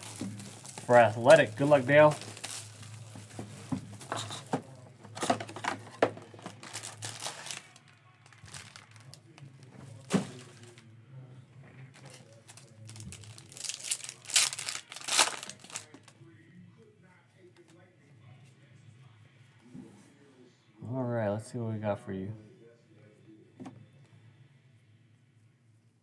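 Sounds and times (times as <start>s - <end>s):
foil pack tearing: 0.0s - 3.2s, 6.4s - 9.3s, 12.0s - 16.0s
plastic wrap crinkling: 0.0s - 4.5s, 5.2s - 9.4s, 12.0s - 16.1s.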